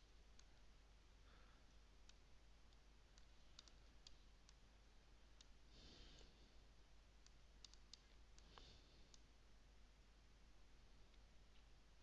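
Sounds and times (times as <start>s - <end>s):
computer mouse clicks: 1.7s - 4.6s, 5.3s - 5.6s, 7.2s - 9.3s.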